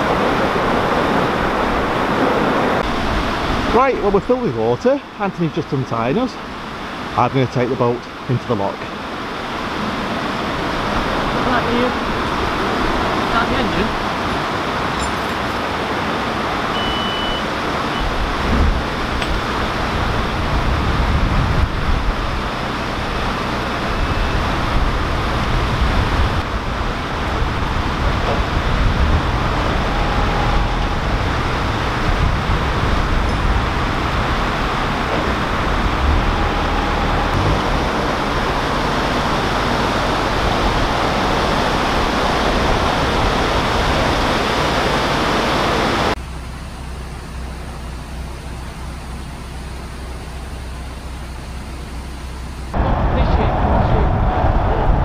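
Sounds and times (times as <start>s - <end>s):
diesel boat engine rumbling: 0.0s - 55.0s
loud rushing noise: 17.5s - 46.2s, 52.7s - 55.0s.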